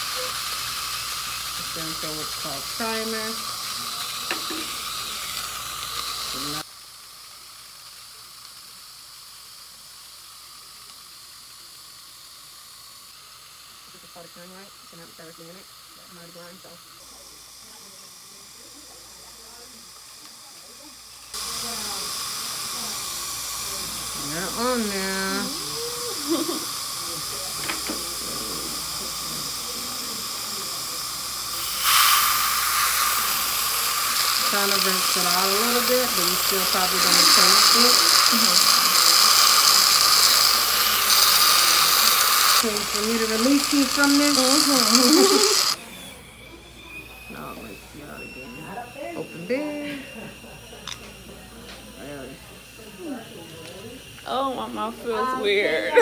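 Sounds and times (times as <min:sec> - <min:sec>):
air-water syringe spraying: 0:00.0 - 0:06.7, 0:21.3 - 0:45.8
dental suction hissing: 0:00.0 - 0:56.0.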